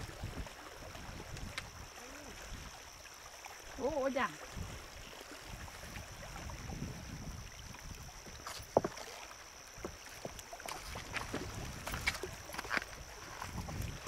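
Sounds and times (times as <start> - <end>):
water: 0.0 - 14.0
wind: 0.0 - 14.0.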